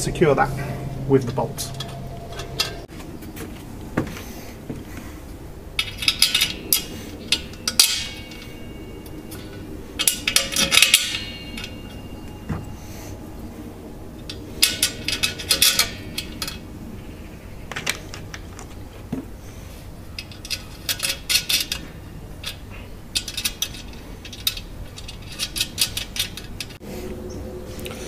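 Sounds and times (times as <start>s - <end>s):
metal bolts clinking against metal drum: 1.6s - 2.8s, 5.8s - 12.7s, 14.2s - 16.6s, 20.2s - 26.8s.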